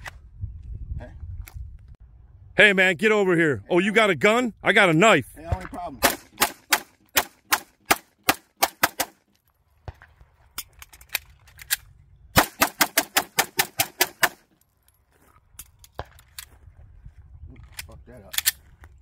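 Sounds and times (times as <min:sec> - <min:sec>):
pistol shots: 0:06.0 - 0:09.2, 0:12.4 - 0:14.4.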